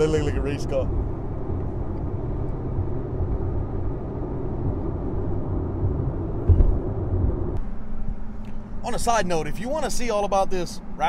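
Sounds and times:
car engine and road noise drone: 0:00.0 - 0:11.0
low thump: 0:06.4 - 0:07.7.

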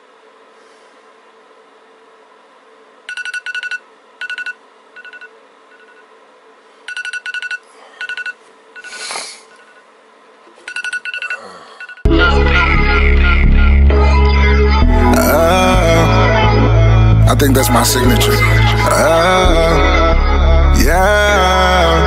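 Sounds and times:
phone alarm beeping: 0:03.1 - 0:06.1, 0:06.9 - 0:09.9, 0:10.6 - 0:12.1.

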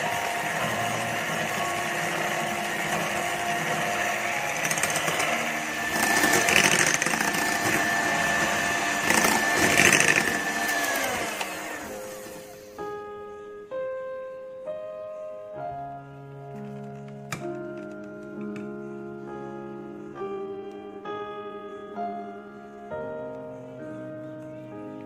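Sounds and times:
electric hand mixer running: 0:00.0 - 0:12.8
piano music: 0:00.0 - 0:25.0.

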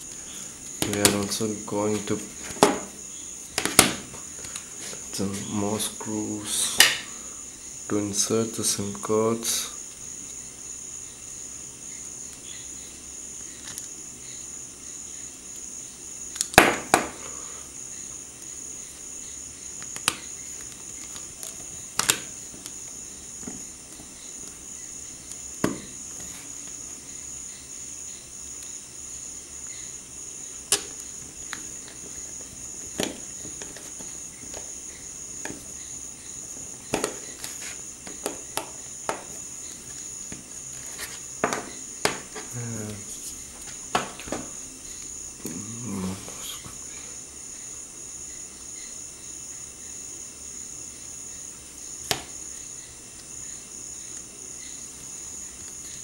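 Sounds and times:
phone being handled: 0:30.7 - 0:35.8, 0:36.5 - 0:42.5.

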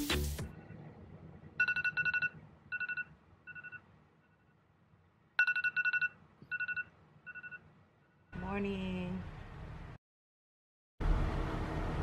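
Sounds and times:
phone alarm beeping: 0:01.6 - 0:03.8, 0:05.4 - 0:07.7.

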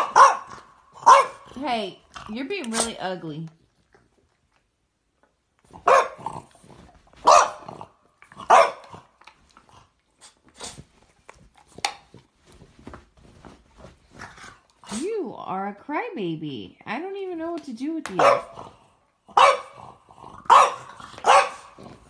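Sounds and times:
dog barking indoors: 0:00.0 - 0:01.7, 0:05.7 - 0:09.3, 0:18.1 - 0:22.0.

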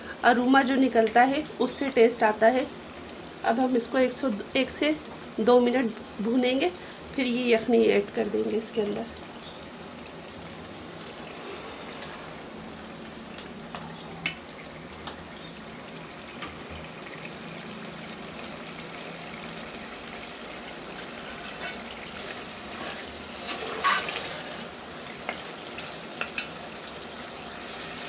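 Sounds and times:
food sizzling in a metal pot: 0:00.0 - 0:28.0
metal spoon scraping a pot: 0:21.2 - 0:21.9, 0:22.7 - 0:24.7.

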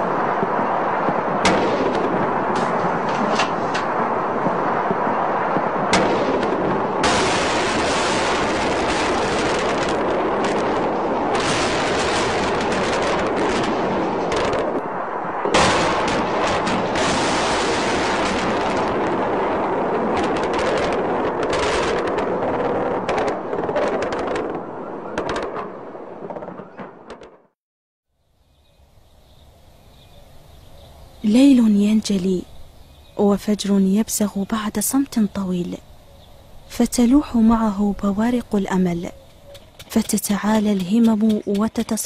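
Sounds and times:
explosions: 0:00.0 - 0:27.6.

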